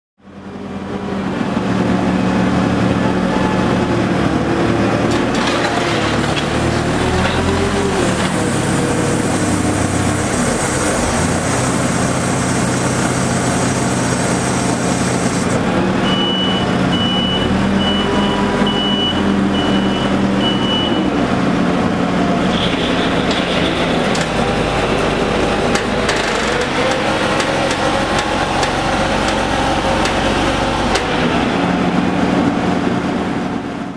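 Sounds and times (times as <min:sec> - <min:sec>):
diesel engine running: 0:00.2 - 0:33.9
reversing alarm beeps: 0:16.0 - 0:21.1.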